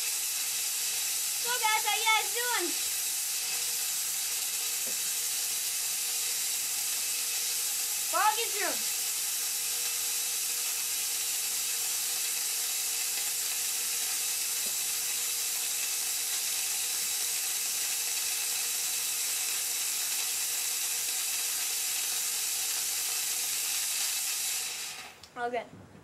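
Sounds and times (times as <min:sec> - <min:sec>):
fog machine hissing: 0:00.0 - 0:25.3.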